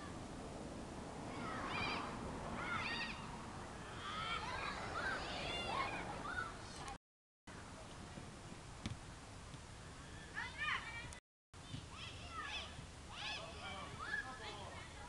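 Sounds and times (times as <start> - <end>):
noise of children playing: 1.2 - 7.0, 10.3 - 15.0
children shouting: 1.3 - 6.8, 11.9 - 14.4.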